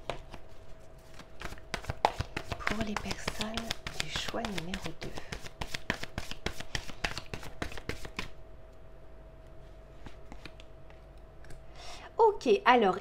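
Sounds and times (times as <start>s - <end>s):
cards being shuffled: 0.0s - 8.4s, 10.0s - 11.0s
faint steady hum: 0.0s - 13.0s.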